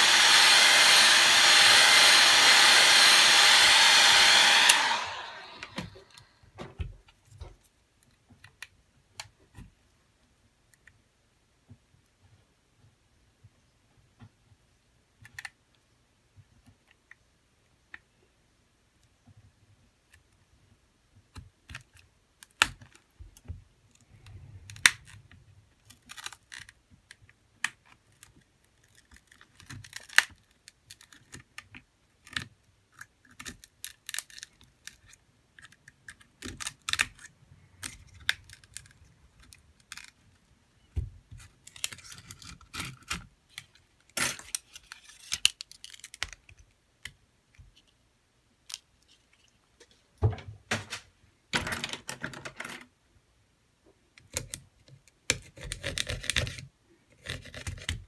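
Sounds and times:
pry tool scraping plastic: 0:54.2 - 0:58.0.

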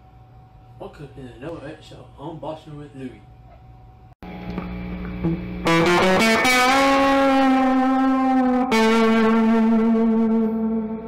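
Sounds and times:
electric guitar with effects: 0:04.2 - 0:11.0.

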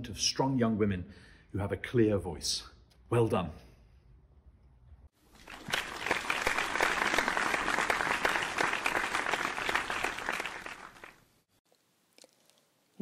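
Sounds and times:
audience applause: 0:05.3 - 0:11.2.

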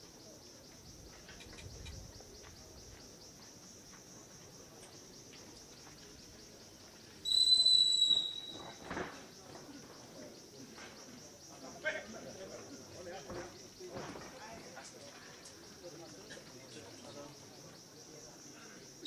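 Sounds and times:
insects chirping: 0:00.0 - 0:19.0
loud high whistle-like tone: 0:07.2 - 0:08.9.

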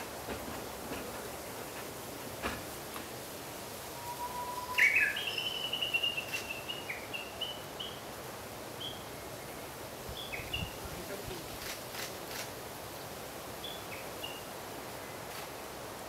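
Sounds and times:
steady outdoor hiss: 0:00.0 - 0:16.0
songbird singing: 0:03.8 - 0:11.4, 0:13.5 - 0:15.3.

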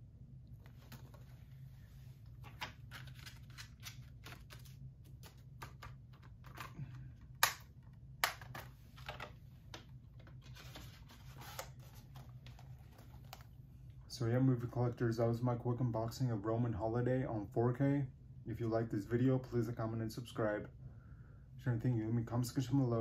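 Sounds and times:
plastic case clicks and rustles: 0:02.4 - 0:10.4.

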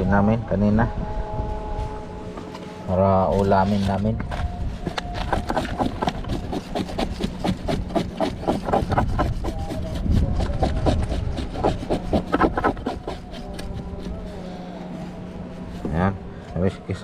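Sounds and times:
knife scraping fish scales: 0:05.2 - 0:14.4.

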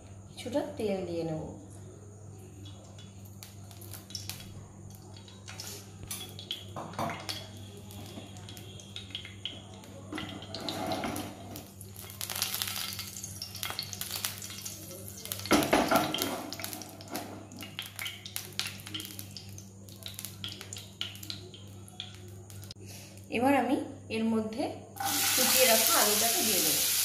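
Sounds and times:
oil sizzling in a frying pan: 0:02.6 - 0:22.8, 0:25.0 - 0:27.0
utensil scraping a pan: 0:10.2 - 0:11.6.

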